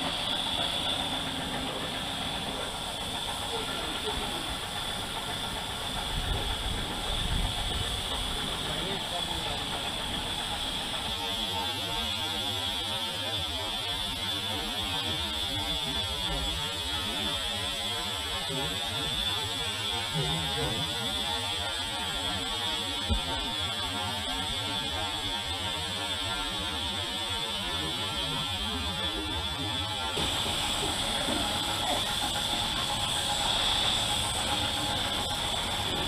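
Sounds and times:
paint spray gun hissing: 0:00.0 - 0:11.1, 0:30.2 - 0:36.0.

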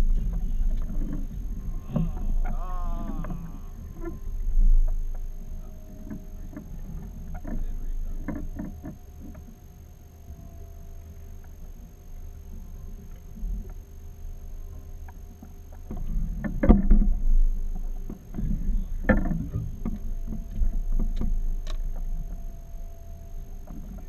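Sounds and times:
low rumble: 0:00.0 - 0:14.8, 0:16.0 - 0:24.0.

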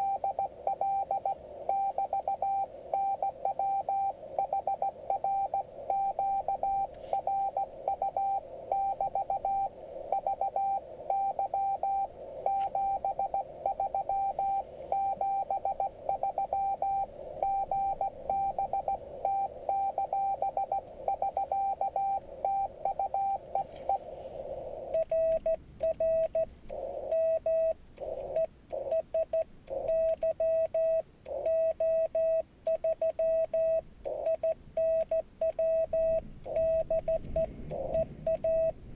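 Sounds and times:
radio hiss: 0:00.0 - 0:25.3, 0:36.8 - 0:38.3
keyed sidetone: 0:00.0 - 0:38.8
morse code tones: 0:00.0 - 0:38.8.

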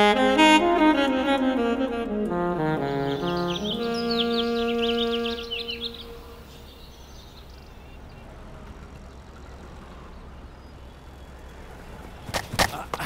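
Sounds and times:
held brass note: 0:00.0 - 0:06.8
birds chirping: 0:00.0 - 0:13.0
distant low hum: 0:00.0 - 0:13.0.

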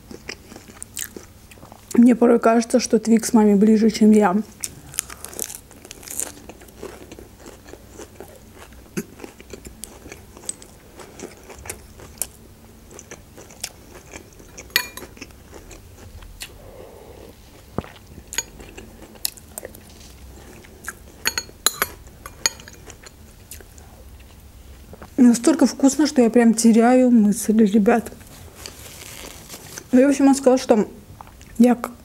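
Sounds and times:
chewing and mouth noises: 0:00.0 - 0:02.0, 0:04.6 - 0:21.3, 0:21.9 - 0:25.2.

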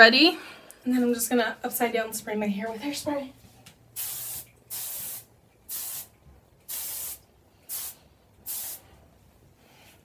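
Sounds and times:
aerosol spray hissing bursts: 0:04.0 - 0:06.1, 0:06.7 - 0:08.8.

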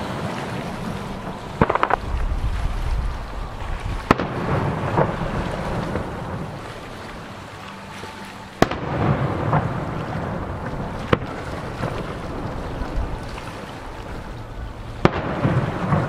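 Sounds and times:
rolling rumble: 0:00.0 - 0:07.3, 0:08.6 - 0:16.0
firework shells bursting: 0:01.6 - 0:02.0.

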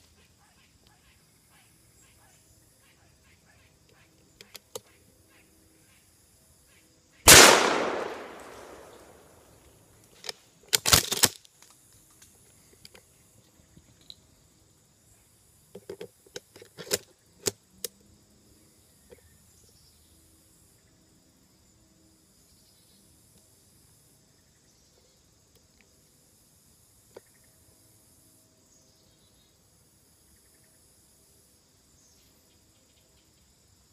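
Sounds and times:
gunshot echoing through trees: 0:07.3 - 0:09.5.

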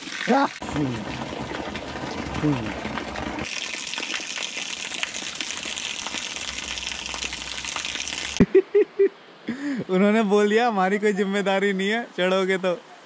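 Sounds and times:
water rushing with splashes: 0:00.0 - 0:08.5.

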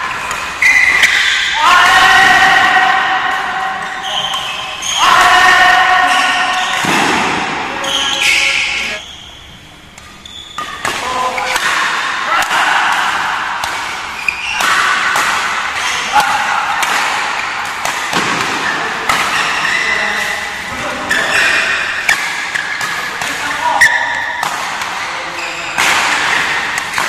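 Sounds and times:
players shouting: 0:00.0 - 0:09.0, 0:11.0 - 0:17.5
racket striking shuttlecock: 0:09.9 - 0:19.7, 0:21.7 - 0:25.1, 0:25.8 - 0:27.0.

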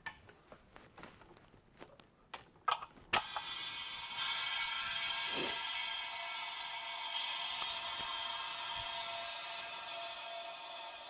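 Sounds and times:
compressed air hissing: 0:03.2 - 0:10.4.

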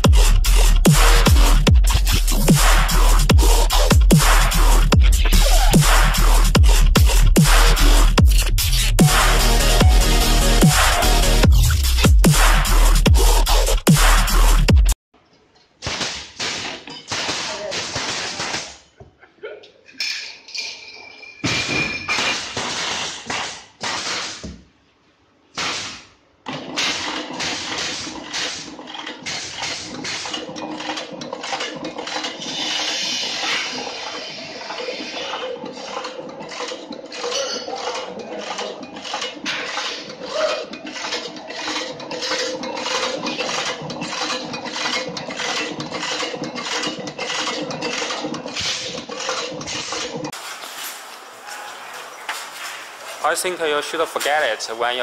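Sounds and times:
loud clatter: 0:25.6 - 0:51.1.

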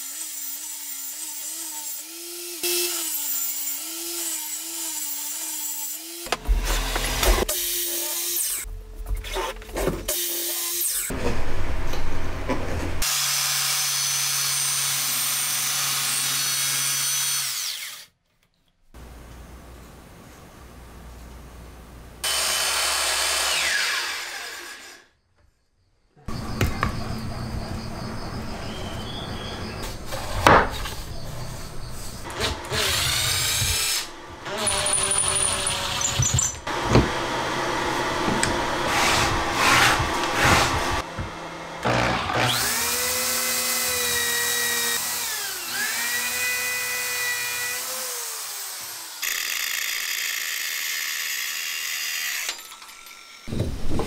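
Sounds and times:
miter saw cutting plywood: 0:00.0 - 0:08.7, 0:22.2 - 0:25.0, 0:29.0 - 0:52.6.

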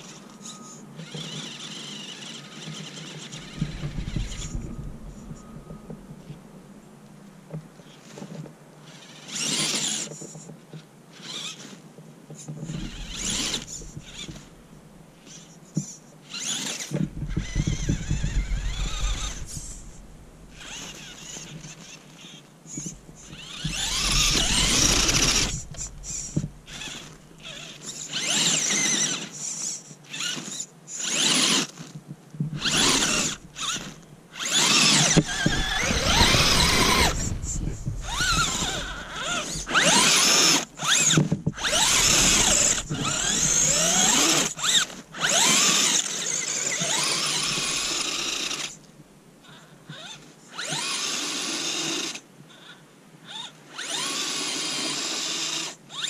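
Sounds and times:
electric motor whining: 0:00.0 - 0:06.7, 0:12.6 - 0:15.6, 0:16.3 - 0:29.4, 0:32.6 - 0:48.8
tyres churning through snow: 0:01.4 - 0:06.4, 0:12.7 - 0:14.9, 0:16.3 - 0:22.0, 0:22.7 - 0:29.3, 0:32.6 - 0:48.8.

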